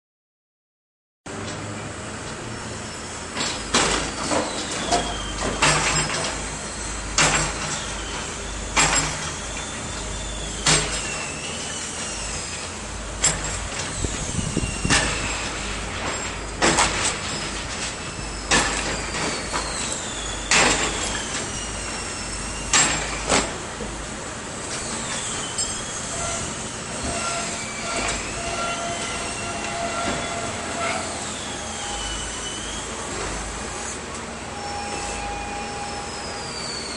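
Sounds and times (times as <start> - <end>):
excavator diesel engine: 1.3 - 36.9
high gliding squeals: 2.4 - 13.1, 13.8 - 16.5, 17.2 - 23.3, 24.7 - 36.9.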